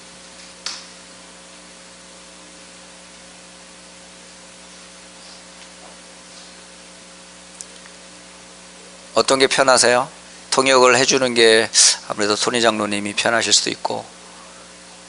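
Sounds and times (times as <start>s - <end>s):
low electrical hum: 0.0s - 15.0s
steady hiss: 0.0s - 15.0s.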